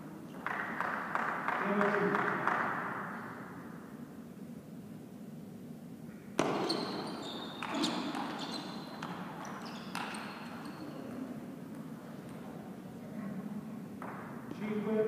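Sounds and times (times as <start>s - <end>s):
shoes squeaking on floor: 6.4s - 11.4s.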